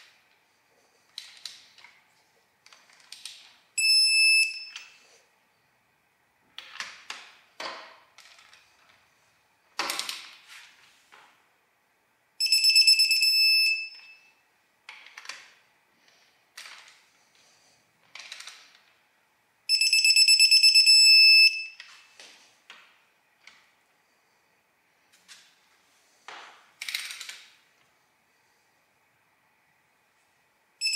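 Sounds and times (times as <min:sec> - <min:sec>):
torque wrench beeping: 0:19.7 - 0:21.8
wrench clicks and rattles: 0:26.8 - 0:27.5.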